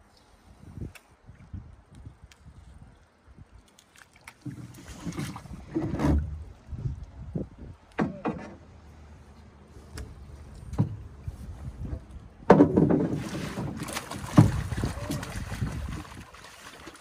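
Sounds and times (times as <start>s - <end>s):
sharp splash: 3.6s - 5.6s, 13.0s - 17.0s
fish thrashing and splashing: 3.6s - 5.7s, 13.1s - 17.0s.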